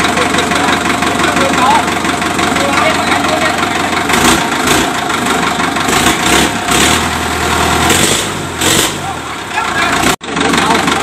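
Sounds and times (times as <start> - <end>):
tractor diesel engine idling: 0.0 - 11.0.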